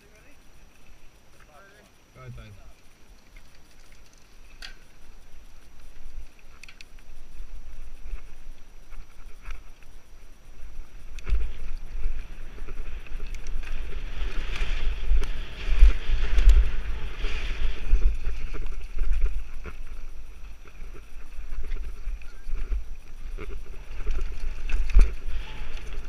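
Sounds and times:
bike tyres rolling on dirt: 0:00.0 - 0:26.0
wind buffeting microphone: 0:07.0 - 0:26.0.

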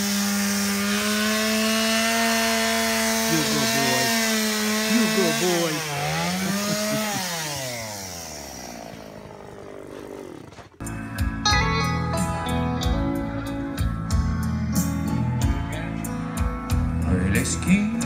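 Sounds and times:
chainsaw running: 0:00.0 - 0:11.0.

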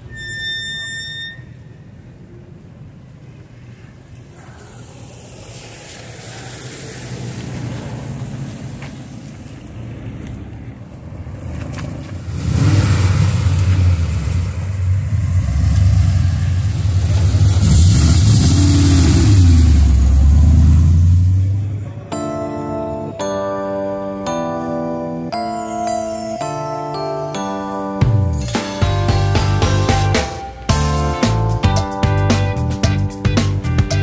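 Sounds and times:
cars driving past on wet pavement: 0:03.2 - 0:21.9
deep engine rumble: 0:09.4 - 0:22.1.

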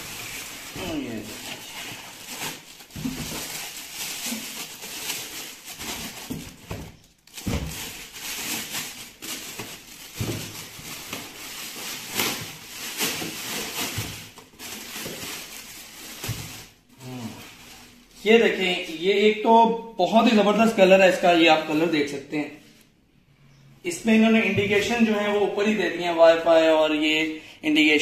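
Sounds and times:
plastic bag rustling and crinkling: 0:00.0 - 0:19.0.

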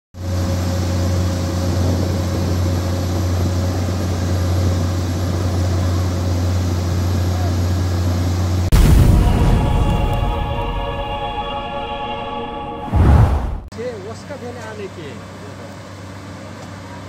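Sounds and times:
excavator diesel engine droning: 0:00.2 - 0:13.2
sudden loud boom: 0:08.7 - 0:13.7.

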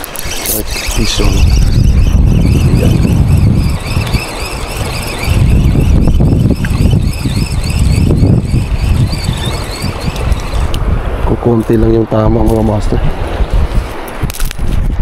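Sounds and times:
high wavering squeak: 0:00.0 - 0:10.8
wind buffeting microphone: 0:00.0 - 0:15.0.

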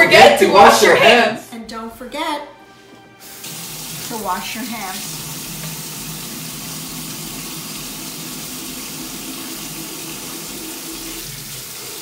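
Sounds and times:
faucet running into metal sink: 0:03.2 - 0:12.0.

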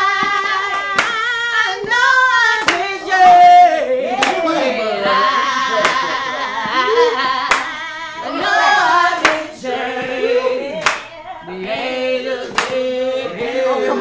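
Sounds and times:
loud hand clap: 0:00.0 - 0:03.6, 0:04.2 - 0:04.5, 0:05.8 - 0:06.2, 0:07.2 - 0:07.8, 0:09.2 - 0:09.5, 0:10.8 - 0:11.1, 0:12.4 - 0:12.8
voices singing a slow song: 0:00.0 - 0:14.0.

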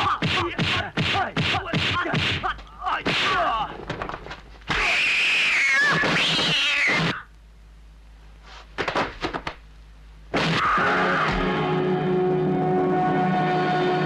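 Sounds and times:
cat-like yowl: 0:04.7 - 0:07.3.

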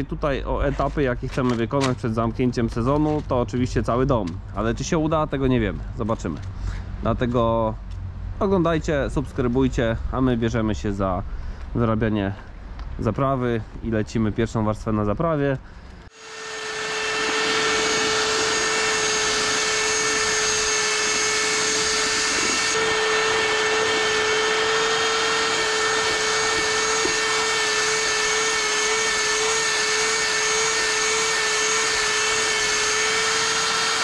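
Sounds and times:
electric drill whining: 0:16.1 - 0:34.0.

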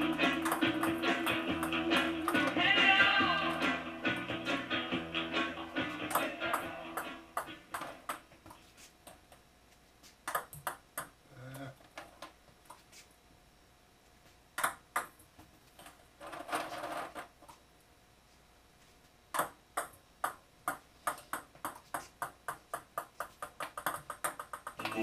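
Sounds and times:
ball bouncing on table: 0:10.2 - 0:11.2, 0:14.6 - 0:15.2, 0:19.4 - 0:25.0.

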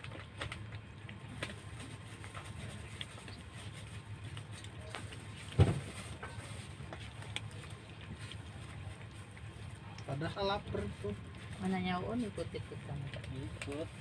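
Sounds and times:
kittens crunching kibble: 0:00.0 - 0:14.0
low background hum: 0:00.0 - 0:14.0
thump: 0:05.6 - 0:05.9.

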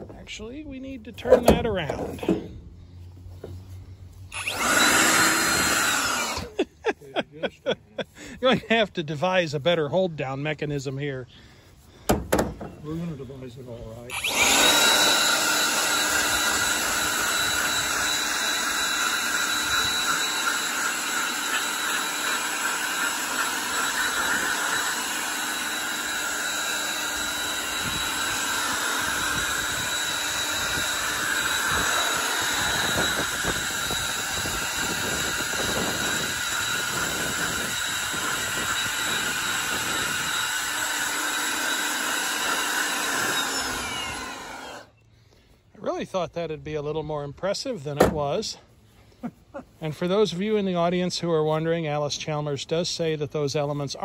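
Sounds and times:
blower rushing air: 0:01.2 - 0:06.9, 0:11.9 - 0:44.9.

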